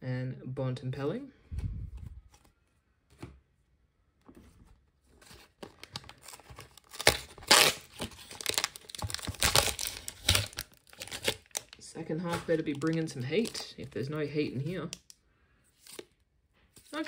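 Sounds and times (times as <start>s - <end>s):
plastic wrapper crinkling: 5.2s - 15.2s
sharp plastic rips: 5.7s - 13.6s.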